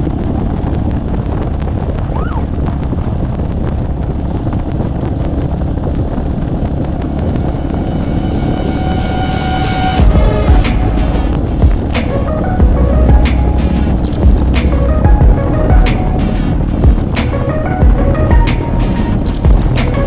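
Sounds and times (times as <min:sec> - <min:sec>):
wind noise on microphone: 0:00.0 - 0:20.0
music: 0:07.2 - 0:20.0.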